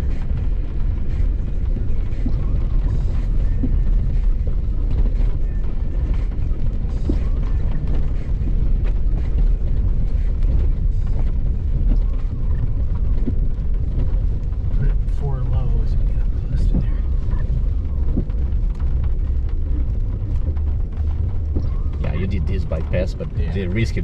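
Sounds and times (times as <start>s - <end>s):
vehicle engine rumble: 0.0s - 24.0s.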